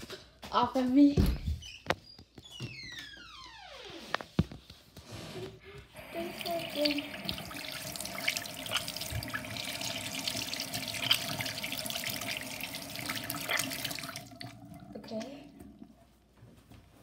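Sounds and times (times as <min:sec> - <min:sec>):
tap water splashing into basin: 0:06.0 - 0:15.9.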